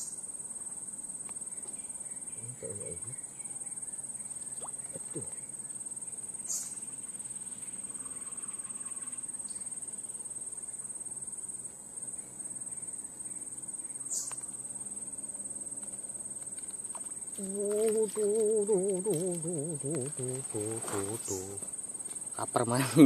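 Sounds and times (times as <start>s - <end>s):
insects droning: 0.0s - 23.0s
person's voice wavering in pitch: 17.4s - 21.6s.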